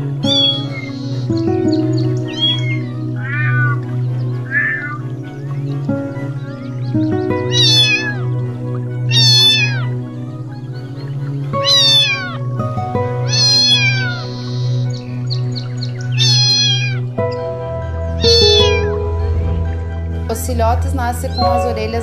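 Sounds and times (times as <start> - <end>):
background music: 0.0 - 22.0
kitten meowing: 0.2 - 0.9, 2.3 - 3.8, 4.4 - 5.0, 7.5 - 8.3, 9.1 - 9.9, 11.6 - 12.4, 13.2 - 14.9, 16.1 - 17.1, 18.2 - 19.0.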